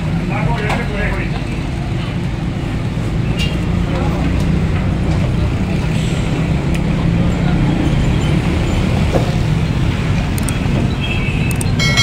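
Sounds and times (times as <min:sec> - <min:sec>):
road traffic rumble: 0:00.0 - 0:12.0
faint sharp clicks: 0:11.5 - 0:11.7.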